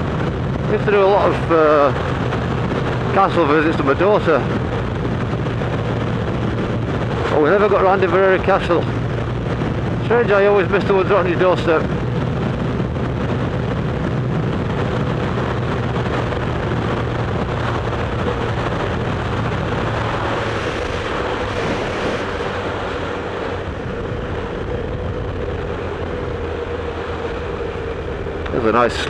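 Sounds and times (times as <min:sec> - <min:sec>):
motorcycle engine cruising: 0:00.0 - 0:29.0
wind and road noise: 0:00.0 - 0:29.0.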